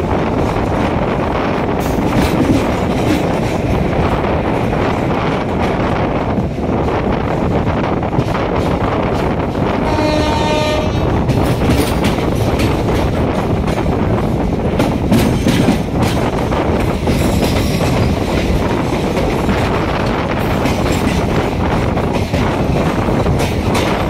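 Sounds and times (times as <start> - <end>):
train rushing past: 0.0 - 24.0
wheels clattering over rail joints: 11.3 - 24.0.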